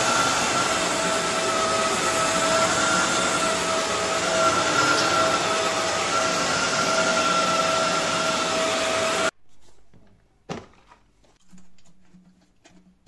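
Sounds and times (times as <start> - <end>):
floor cleaner motor whine: 0.0 - 9.4.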